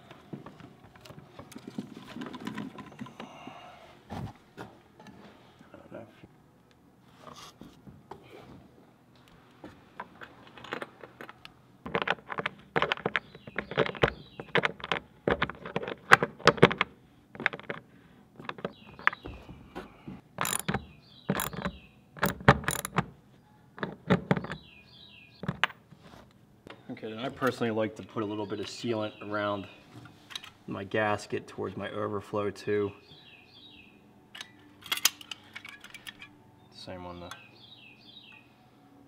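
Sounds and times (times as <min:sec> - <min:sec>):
metallic clicks and knocks: 0:20.4 - 0:23.1.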